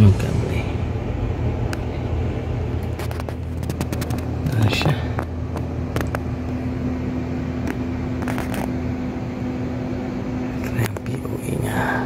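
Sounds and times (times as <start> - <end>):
steady mechanical hum: 0.0 - 12.0
cables rustling: 2.7 - 6.8.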